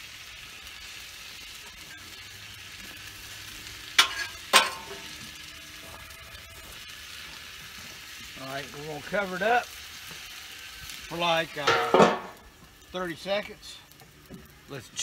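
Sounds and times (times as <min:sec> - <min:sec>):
food sizzling on a griddle: 0:00.0 - 0:15.0
metal spatulas clanking: 0:04.0 - 0:05.0, 0:11.6 - 0:12.4.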